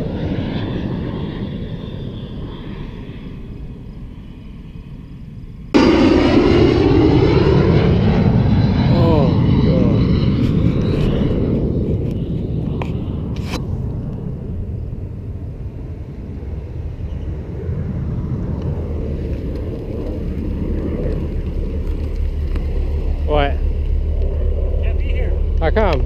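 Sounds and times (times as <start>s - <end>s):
motorcycle engine rumbling: 18.6s - 26.0s.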